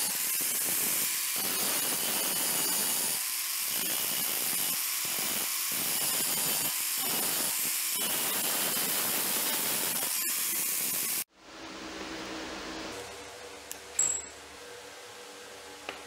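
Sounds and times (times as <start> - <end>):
angle grinder grinding steel: 0.0 - 11.2.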